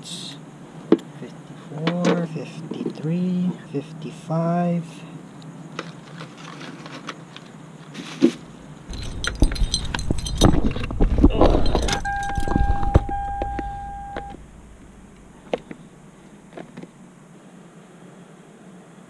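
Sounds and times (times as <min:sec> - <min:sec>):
keys jangling: 0:08.9 - 0:15.2
low handling knocks: 0:08.9 - 0:15.8
steady electronic beep: 0:11.8 - 0:14.8.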